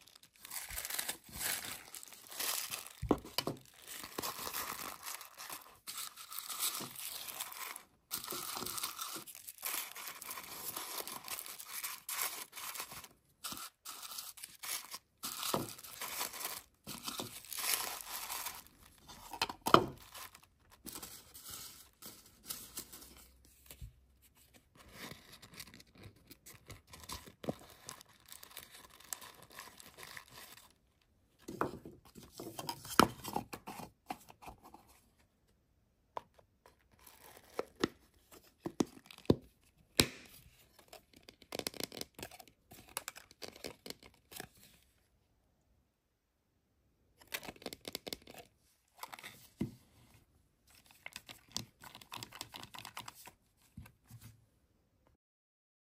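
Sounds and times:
tissue paper crinkling: 0:00.0 - 0:19.4.

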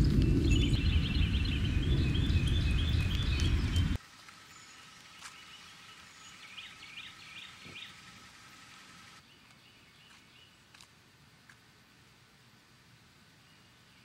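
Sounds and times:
birds chirping: 0:00.0 - 0:10.7.

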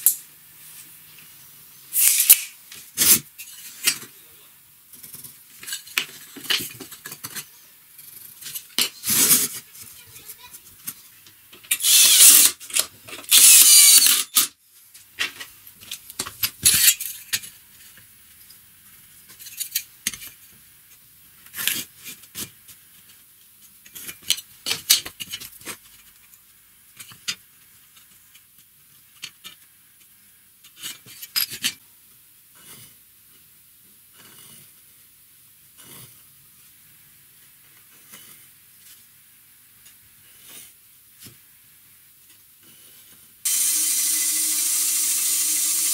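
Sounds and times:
cordless drill driving screw: 0:11.8 - 0:12.6, 0:13.3 - 0:14.4, 0:43.5 - 0:45.9.

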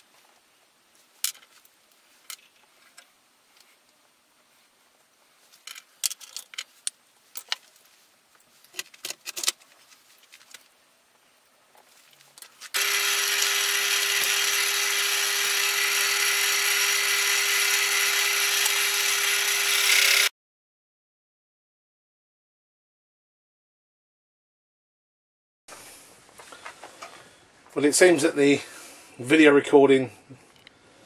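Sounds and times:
wood lathe running: 0:12.8 - 0:20.3.

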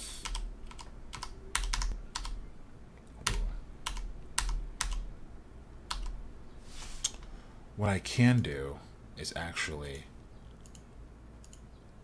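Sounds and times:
computer keyboard keys clicking: 0:00.2 - 0:02.4, 0:03.2 - 0:05.0, 0:05.9 - 0:06.2, 0:10.6 - 0:11.7.

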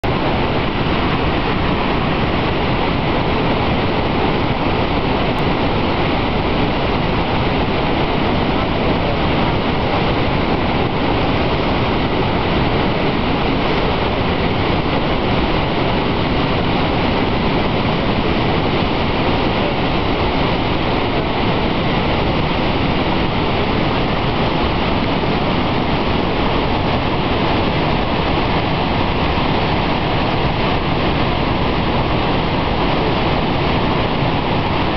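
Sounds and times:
waterfall rushing: 0:00.0 - 0:34.9.

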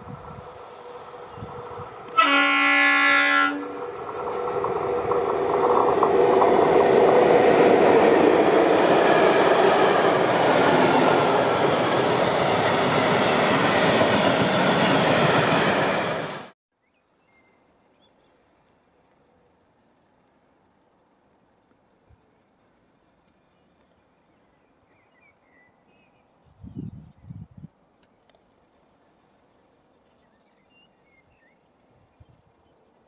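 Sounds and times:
train wheels rumbling on rail: 0:00.0 - 0:16.5
locomotive horn: 0:02.1 - 0:03.8.

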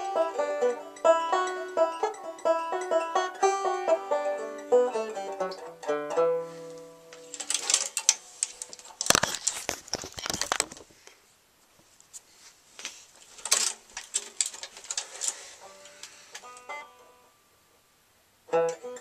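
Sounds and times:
faint banjo notes: 0:00.0 - 0:09.3, 0:15.1 - 0:19.0
clicks and scuffs: 0:11.8 - 0:16.6.

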